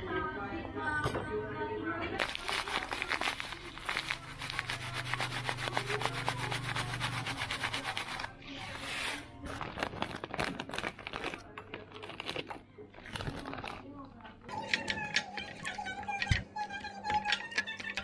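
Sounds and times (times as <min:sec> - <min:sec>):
plastic bag crinkling: 0:02.2 - 0:14.2.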